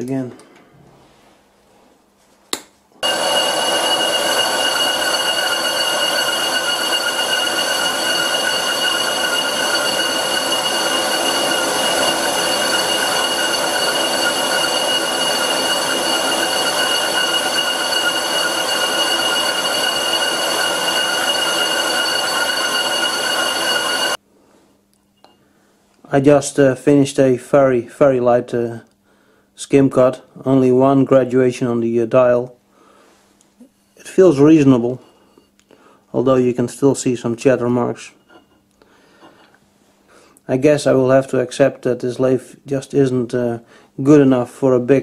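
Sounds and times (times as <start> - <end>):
high-pitched lathe cutting squeal: 3.0 - 24.2.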